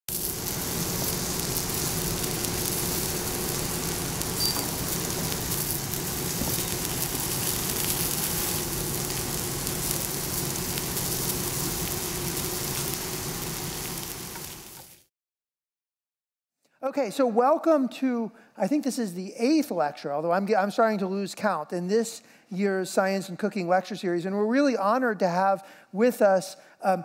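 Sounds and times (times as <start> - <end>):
meat sizzling on griddle: 0.1 - 15.1
low steady hum: 0.2 - 12.4.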